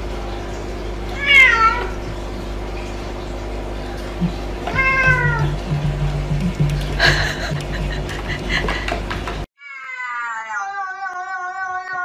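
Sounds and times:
cat meowing: 1.2 - 1.9, 4.7 - 5.5, 9.6 - 12.0.

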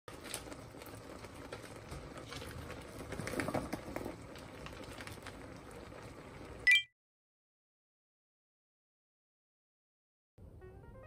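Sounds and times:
sauce simmering with bubbles popping: 0.1 - 6.6.

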